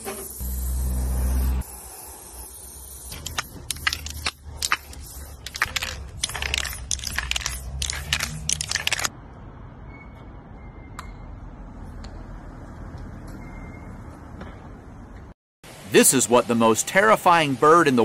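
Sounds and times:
aerosol spray can hissing: 0.1s - 9.0s.

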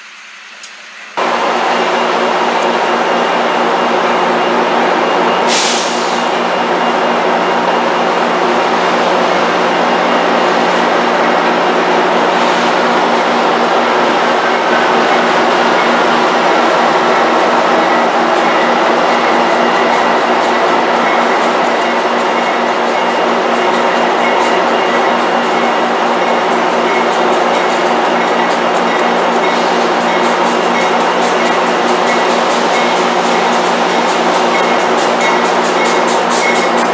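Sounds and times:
diesel locomotive engine drone: 0.0s - 36.9s
air hiss: 5.5s - 6.4s.

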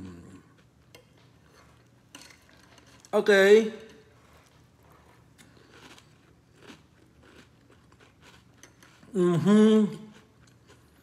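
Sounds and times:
person chewing cereal: 0.0s - 11.0s.

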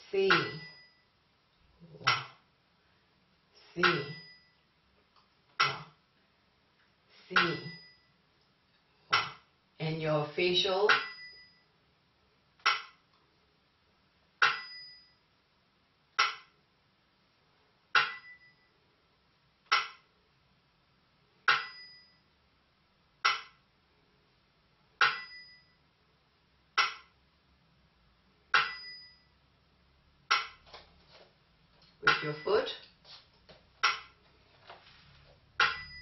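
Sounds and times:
small bell-cymbals ringing: 3.8s - 4.6s, 7.6s - 8.2s, 10.9s - 11.7s, 14.5s - 15.2s, 21.6s - 22.3s, 25.1s - 25.8s, 28.6s - 29.4s, 35.6s - 36.0s.

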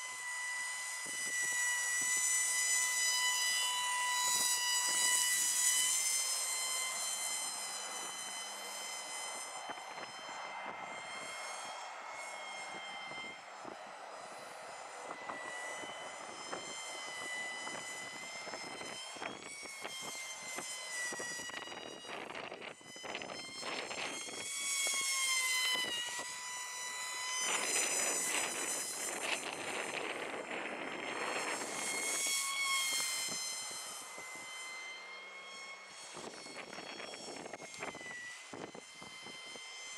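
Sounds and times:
small motor and propeller whine: 0.0s - 39.9s
wind buffeting microphone: 15.1s - 25.0s, 27.5s - 33.4s.

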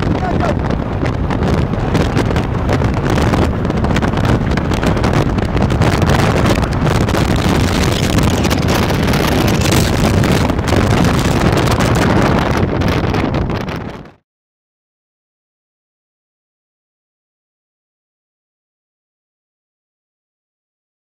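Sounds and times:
road noise: 0.0s - 14.2s
wind rushing over microphone: 0.0s - 14.2s.

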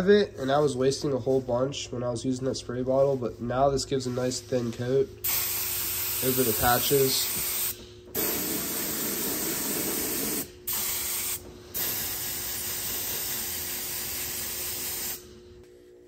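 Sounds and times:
spray gun hissing: 5.2s - 15.2s.

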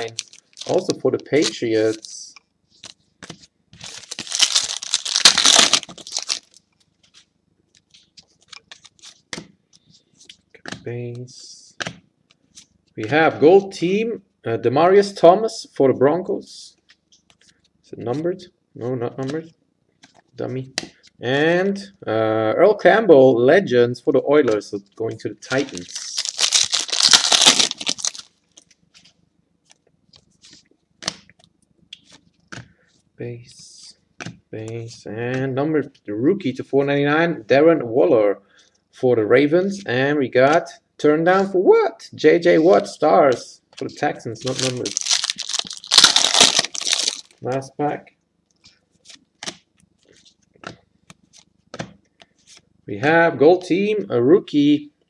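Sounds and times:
wrapper tearing and crinkling: 0.0s - 2.0s, 3.8s - 6.6s, 25.5s - 28.4s, 44.4s - 47.4s
cards clicking and rustling: 2.8s - 10.8s, 25.5s - 32.8s, 43.8s - 47.6s, 48.6s - 52.6s.

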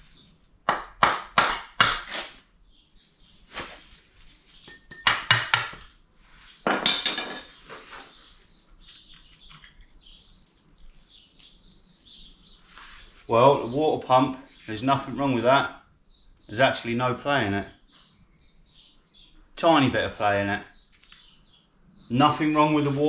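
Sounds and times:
metal tools clinking and clattering: 6.7s - 7.5s.

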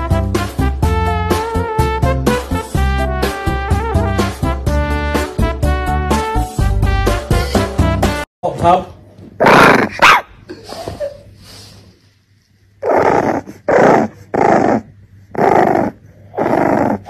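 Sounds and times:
puppy growling barks: 9.4s - 10.4s, 12.8s - 17.0s.

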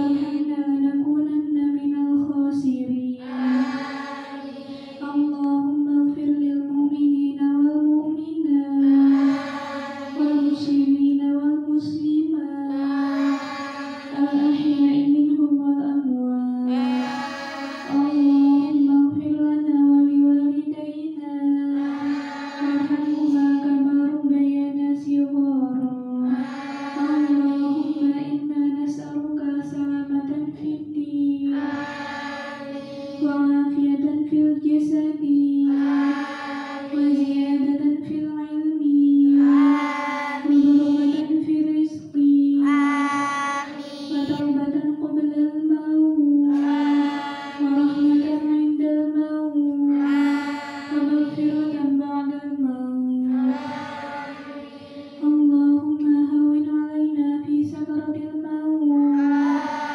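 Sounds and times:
girls chanting in unison: 3.2s - 5.4s, 8.8s - 10.9s, 12.6s - 15.2s, 16.7s - 19.0s, 21.7s - 23.8s, 26.3s - 28.3s, 31.5s - 33.7s, 35.7s - 37.8s, 39.3s - 41.4s, 42.6s - 44.5s, 46.5s - 48.6s, 49.9s - 51.9s, 53.2s - 56.0s, 59.1s - 59.9s.

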